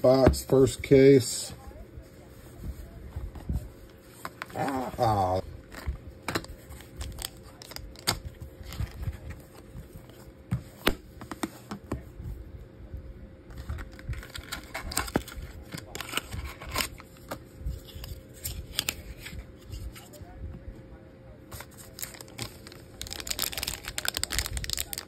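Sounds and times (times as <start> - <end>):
foil wrapper crinkling: 13.6 - 19.3, 21.6 - 25.0.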